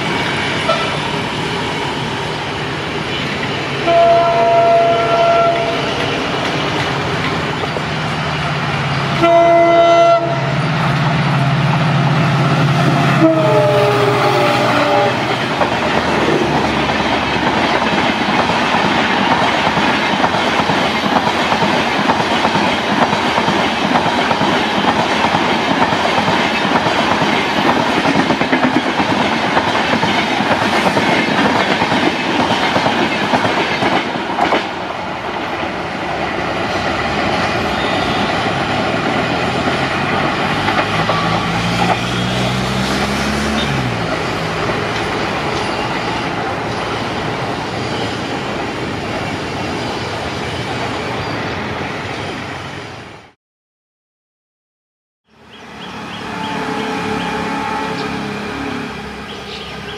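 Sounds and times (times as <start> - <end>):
train wheels rumbling on rails: 0.0 - 53.4
clickety-clack over rail joints: 5.3 - 8.0, 15.2 - 47.0.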